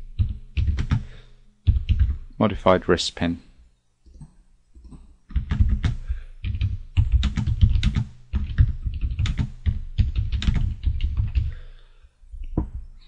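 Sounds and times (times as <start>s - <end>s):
typing on keyboard: 0.2s - 2.2s, 4.1s - 11.5s.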